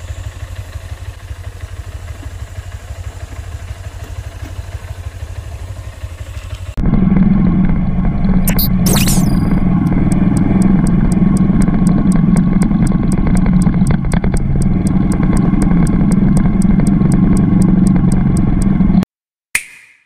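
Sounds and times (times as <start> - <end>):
motorcycle engine running: 0.0 - 19.0
faint high ticking: 9.7 - 18.8.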